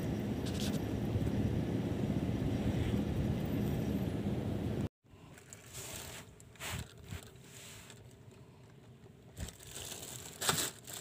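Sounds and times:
plastic bag rustling and crinkling: 5.2s - 11.0s.

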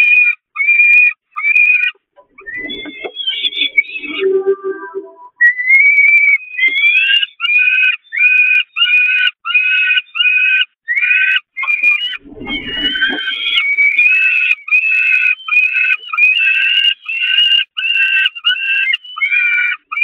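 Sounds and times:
falcon chicks begging calls: 6.1s - 20.0s
low rumble: 12.0s - 14.1s.

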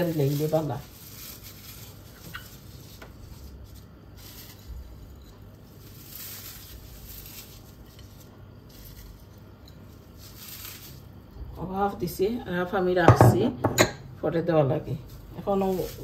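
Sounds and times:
fried onions crunching: 0.0s - 11.6s, 15.0s - 16.0s.

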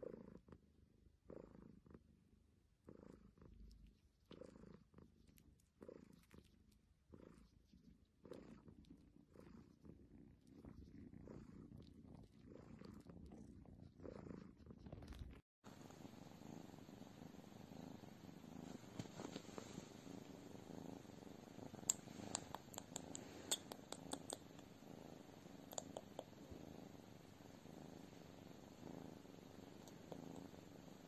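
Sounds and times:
cat purring faintly: 0.0s - 31.0s.

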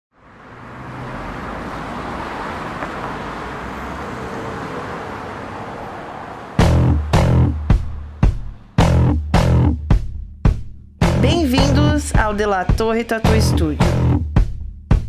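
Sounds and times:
road traffic rushing: 0.1s - 10.0s.

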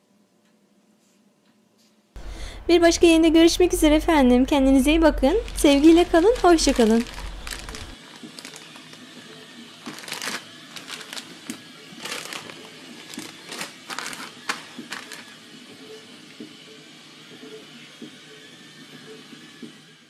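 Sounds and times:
plastic bags crinkling: 5.1s - 9.0s, 9.8s - 15.4s.

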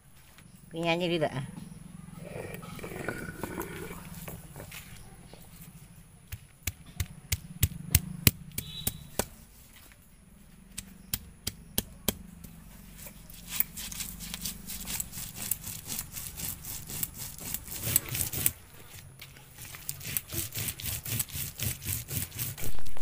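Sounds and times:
grinding stone knocking: 2.3s - 4.9s, 13.4s - 18.6s
stone scraping over spices: 12.9s - 22.8s.

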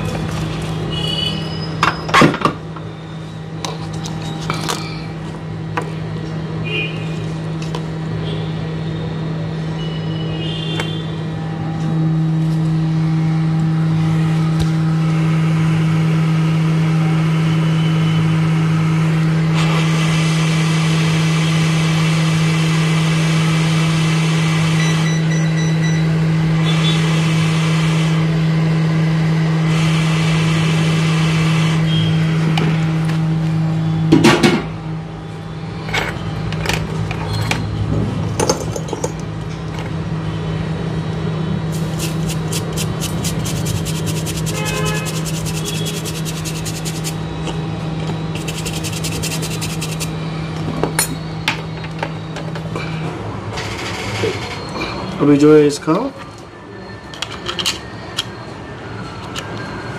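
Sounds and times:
blower hum: 41.3s - 50.8s.

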